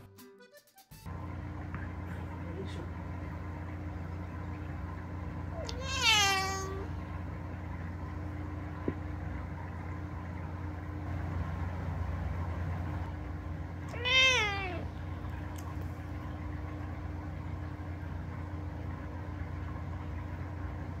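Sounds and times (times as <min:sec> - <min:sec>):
steady low hum: 0:01.1 - 0:21.0
cat meowing: 0:05.5 - 0:06.9, 0:13.9 - 0:15.0.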